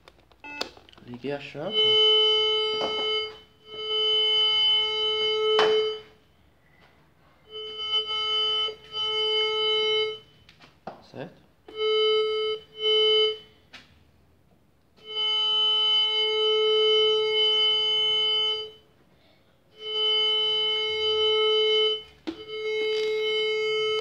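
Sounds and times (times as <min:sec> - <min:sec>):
metal detector tone: 0:00.4 - 0:06.1.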